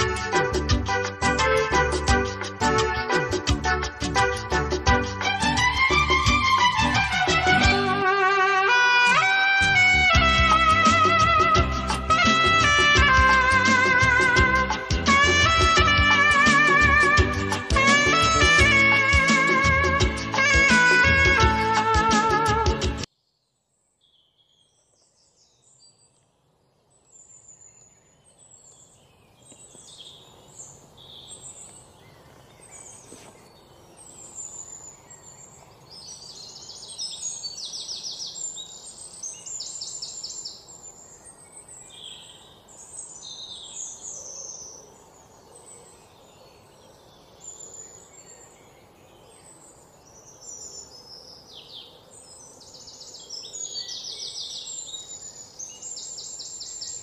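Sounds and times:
birds chirping and singing: 0.0 - 26.2, 26.8 - 57.0.

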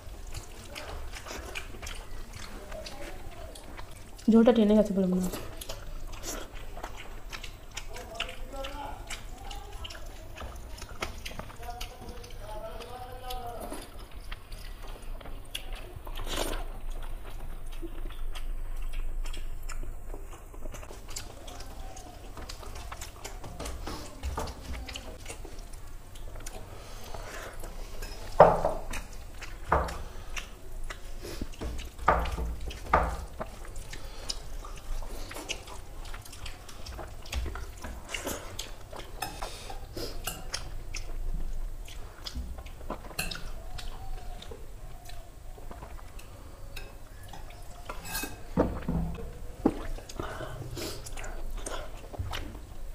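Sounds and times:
chewing: 0.0 - 52.9.

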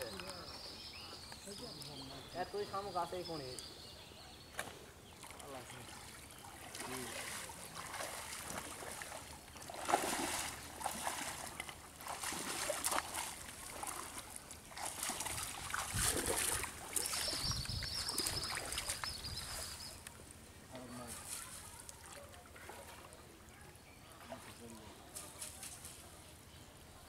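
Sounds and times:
water splashing and sloshing: 4.5 - 20.1, 21.1 - 23.4.

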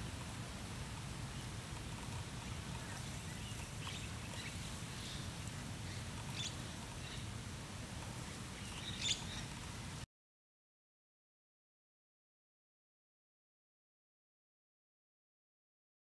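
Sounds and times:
faint bird chirps: 8.2 - 9.5.

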